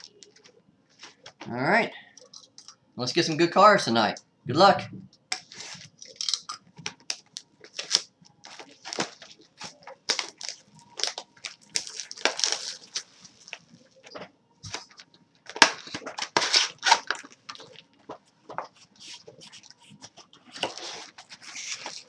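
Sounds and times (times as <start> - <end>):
plastic wrap crinkling: 5.4 - 22.0
plastic wrap ripping: 5.5 - 13.6, 14.7 - 17.8.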